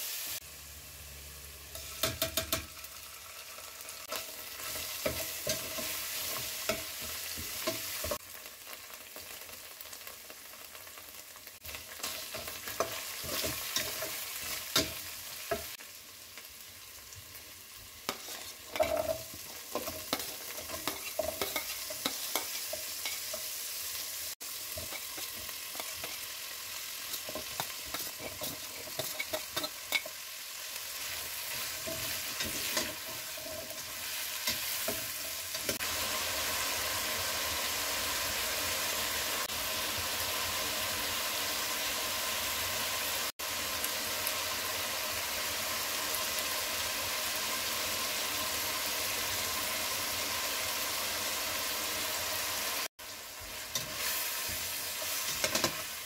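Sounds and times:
vegetables sizzling in oil: 0.0 - 56.0
utensil scraping pot: 18.1 - 23.5, 27.1 - 30.2.

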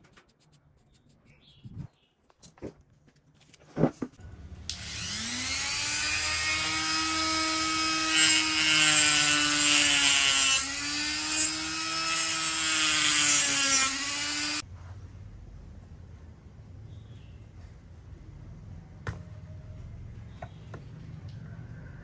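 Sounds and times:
rotary tool motor whine: 4.7 - 9.7.

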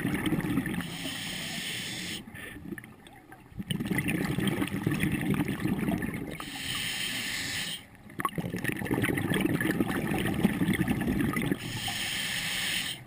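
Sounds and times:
exhale bubbles underwater: 0.0 - 13.0
scuba regulator inhale hiss: 0.8 - 2.6, 6.4 - 7.9, 11.6 - 13.0.

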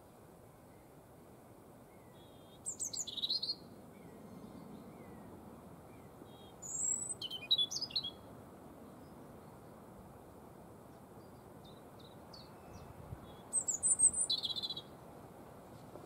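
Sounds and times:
faint bird whistles: 1.9 - 5.3, 6.0 - 8.2, 12.4 - 14.9
robin singing: 2.0 - 5.3, 5.9 - 8.3, 11.2 - 15.0.

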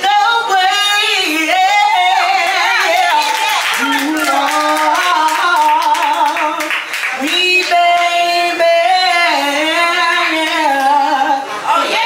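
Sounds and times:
person singing: 0.0 - 12.0.

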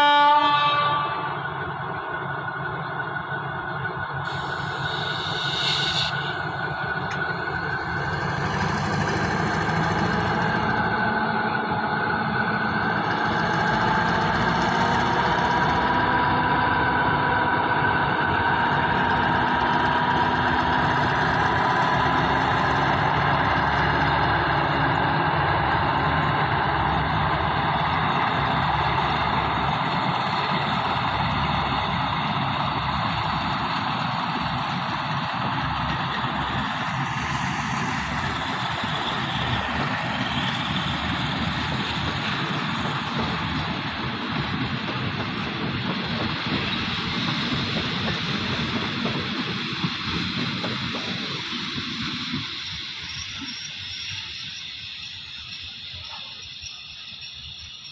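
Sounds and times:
diesel locomotive engine running: 0.0 - 57.9
rising whine: 1.1 - 57.9
brief hiss: 4.3 - 6.4.

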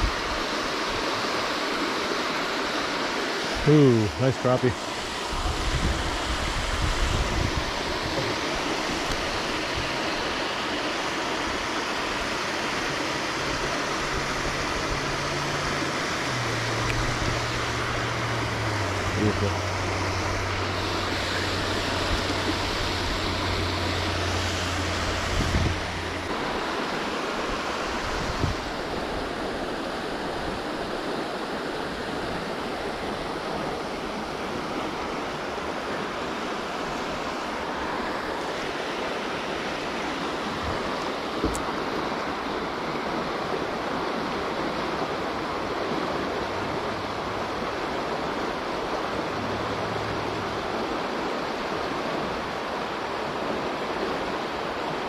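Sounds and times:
flowing water rushing: 0.0 - 55.0
low hum: 3.5 - 29.7.

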